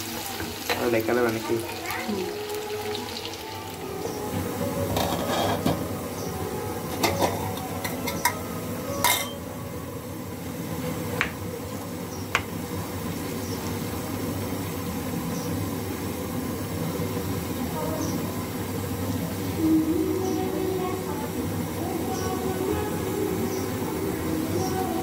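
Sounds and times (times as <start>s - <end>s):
food sizzling in oil: 0.0s - 25.0s.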